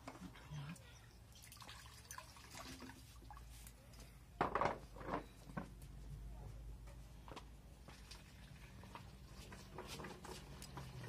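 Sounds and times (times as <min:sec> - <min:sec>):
water pouring and splashing: 0:01.2 - 0:03.8, 0:07.8 - 0:11.0.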